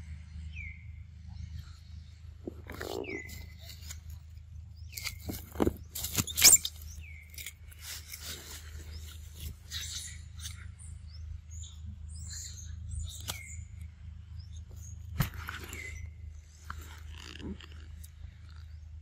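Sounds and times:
steady low rumble: 0.0s - 5.9s
light crackles and rustles: 2.4s - 10.6s.

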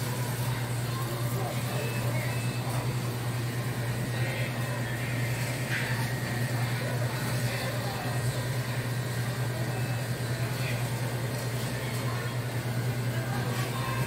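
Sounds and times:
faint store sounds: 0.0s - 14.0s
refrigeration equipment humming: 0.0s - 14.0s.

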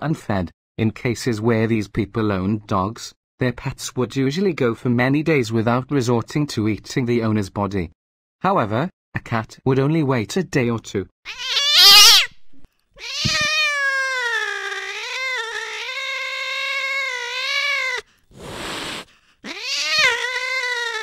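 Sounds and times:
cat hissing: 11.3s - 12.3s, 13.0s - 21.0s
cat yowling: 11.3s - 12.3s, 13.0s - 21.0s.

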